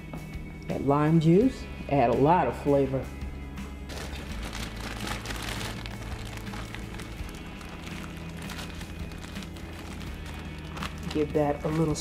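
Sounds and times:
plastic bag crinkling: 0:03.9 - 0:12.0.

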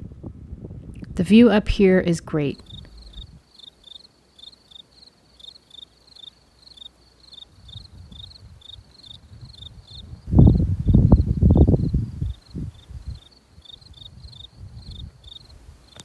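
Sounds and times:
wind buffeting microphone: 0:00.0 - 0:03.5, 0:07.5 - 0:16.0
insect chirping: 0:02.4 - 0:16.0.

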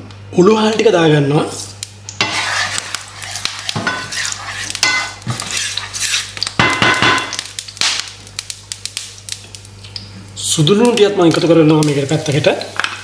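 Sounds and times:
seeds sizzling in hot oil: 0:01.4 - 0:13.0
wooden spatula scraping pan: 0:02.2 - 0:06.4.

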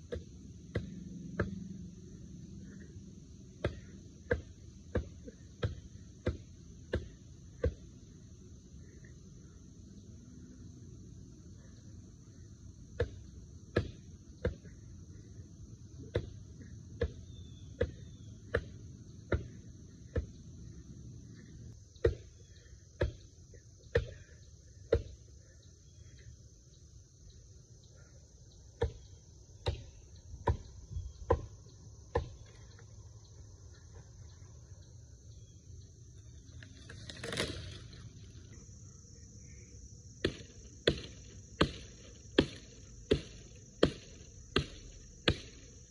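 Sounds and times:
insects trilling: 0:00.0 - 0:45.9
axe chopping wood: 0:03.6 - 0:07.8, 0:13.0 - 0:14.7, 0:22.0 - 0:22.4, 0:24.9 - 0:25.2, 0:28.8 - 0:30.7, 0:32.1 - 0:32.5, 0:40.2 - 0:45.6.

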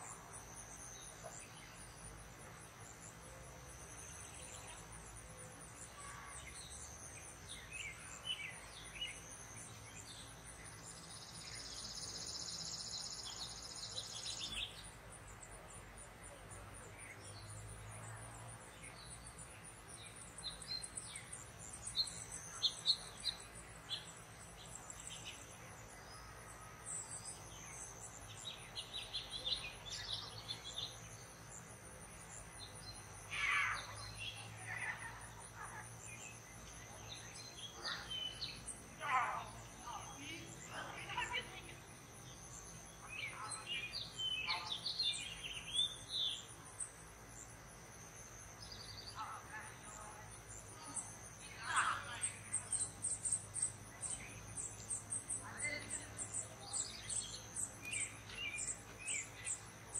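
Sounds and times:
high-pitched insect trill: 0:26.9 - 0:59.9.

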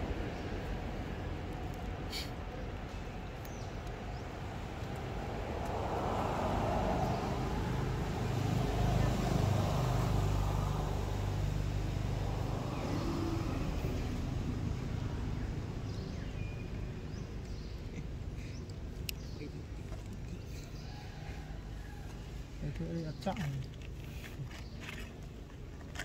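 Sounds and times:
motor vehicle passing by: 0:03.6 - 0:16.4.

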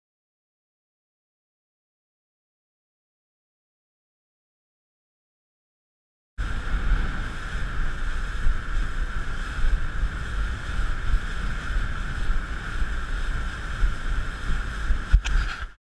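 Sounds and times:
steady high hum: 0:06.4 - 0:15.8
wind buffeting microphone: 0:06.4 - 0:15.8.

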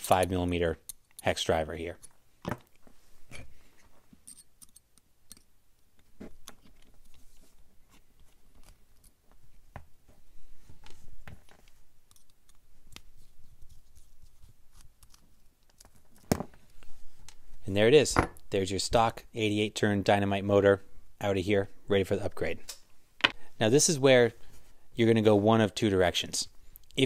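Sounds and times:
small parts handled in fingers: 0:04.2 - 0:09.4, 0:10.8 - 0:17.4.

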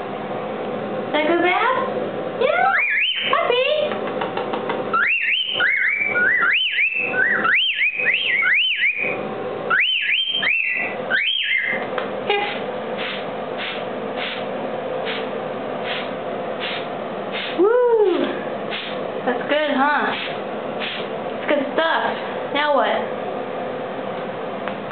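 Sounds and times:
cockatiel whistling: 0:02.6 - 0:03.4, 0:04.9 - 0:14.4
steady hiss: 0:13.0 - 0:17.6.

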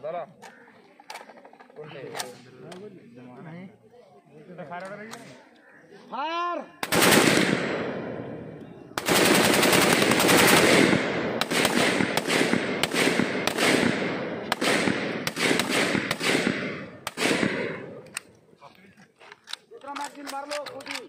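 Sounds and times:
rifle gunfire volley: 0:06.8 - 0:08.4, 0:09.0 - 0:18.0.

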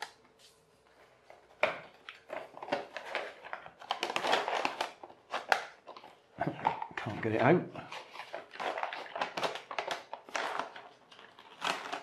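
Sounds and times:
cardboard box crinkling and rustling: 0:02.2 - 0:06.6, 0:07.9 - 0:12.0.

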